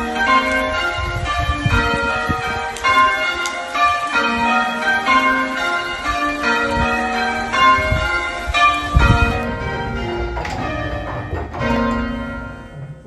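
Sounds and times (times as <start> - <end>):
church bells change ringing: 0.0 - 13.0
low rumble: 9.0 - 13.0.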